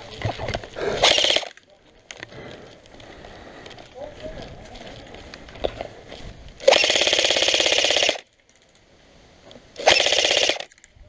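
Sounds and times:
airsoft gun full-auto bursts: 1.0 - 1.6, 6.6 - 8.3, 9.8 - 10.8.

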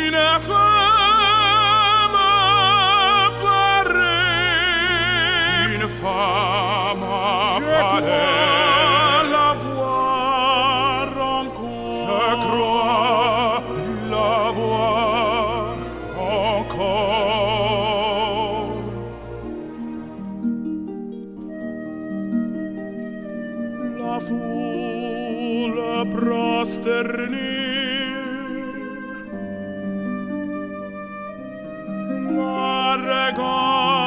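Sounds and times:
operatic solo voice singing: 0.0 - 19.3, 23.8 - 29.4, 32.2 - 34.0.

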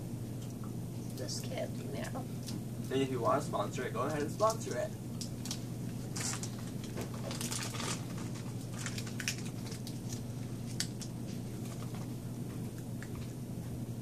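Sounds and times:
steady low hum: 0.0 - 14.0
plastic wrappers crinkling: 4.0 - 12.1.

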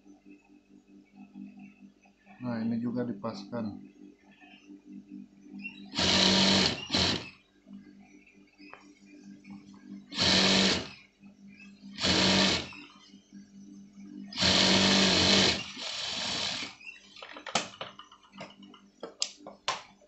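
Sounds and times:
steady low hum: 0.0 - 17.2
sewing machine stitching: 5.9 - 7.3, 10.1 - 10.9, 12.0 - 12.8, 14.3 - 16.7.

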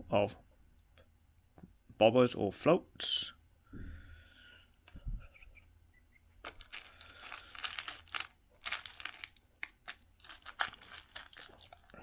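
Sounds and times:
fishing tackle rattling in metal tin: 6.4 - 12.0
rustling: 6.4 - 12.0.

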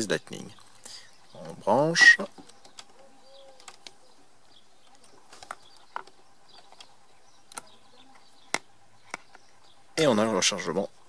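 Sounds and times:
dove cooing: 1.3 - 9.8.

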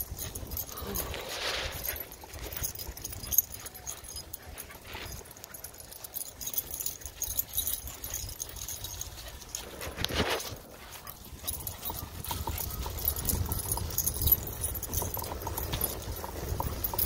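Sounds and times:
light metallic jingling: 0.0 - 17.0
wind rumble on microphone: 9.3 - 17.0.

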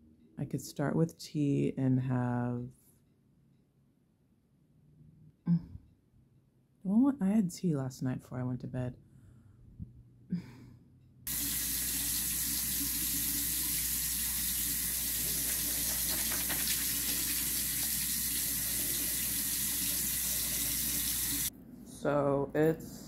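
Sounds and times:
water running from a tap: 11.3 - 21.5.

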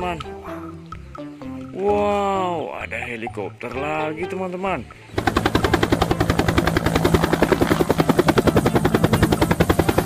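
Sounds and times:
helicopter engine hum: 5.1 - 10.0
helicopter rotor beating: 5.1 - 10.0.

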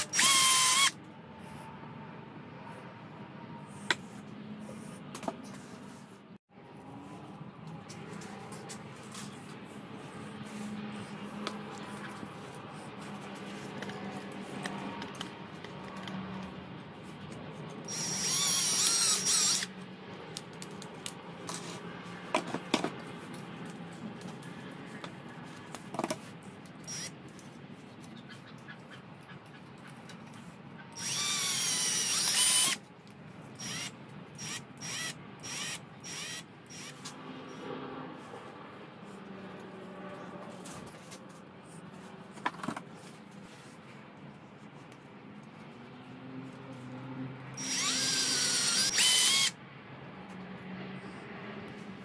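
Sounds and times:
cordless drill motor running: 0.0 - 1.0, 17.9 - 19.7, 26.8 - 27.1, 31.0 - 32.8, 33.6 - 37.0, 47.6 - 49.6.

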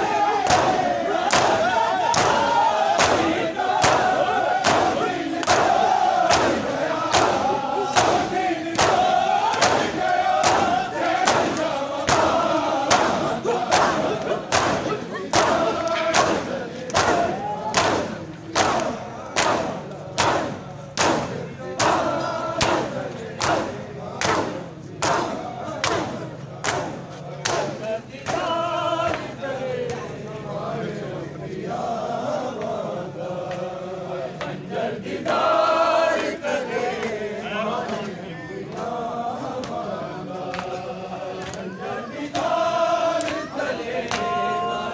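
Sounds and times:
massed voices chanting: 0.0 - 44.9
hands striking chests: 6.3 - 28.4.

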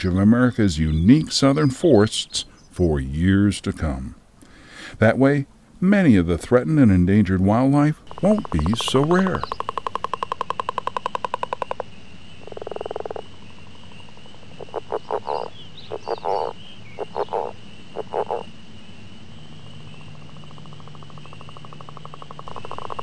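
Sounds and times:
frogs croaking: 6.6 - 23.0
steady high-pitched hum: 7.9 - 23.0.

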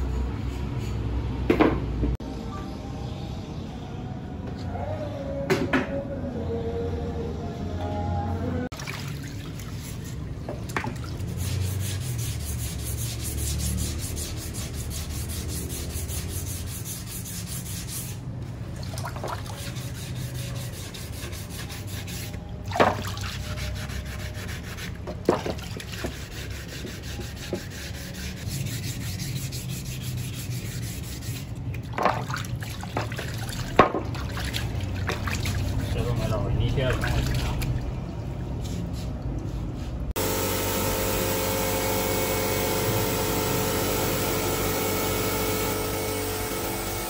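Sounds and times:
hand sanding rubbing strokes: 11.2 - 18.3, 19.3 - 22.4, 23.2 - 31.6.

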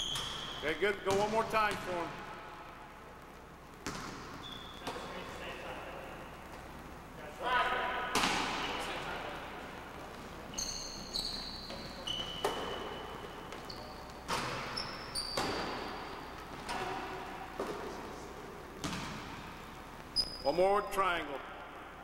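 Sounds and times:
sneakers squeaking on hardwood: 0.0 - 1.2, 3.7 - 5.3, 10.0 - 20.5
basketball bouncing in a gym: 0.0 - 6.8, 8.0 - 20.4.

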